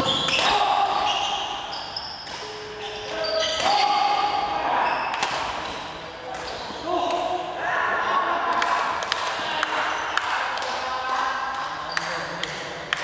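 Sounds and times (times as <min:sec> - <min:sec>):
shoes squeaking on court floor: 0:00.0 - 0:04.0, 0:04.7 - 0:06.9.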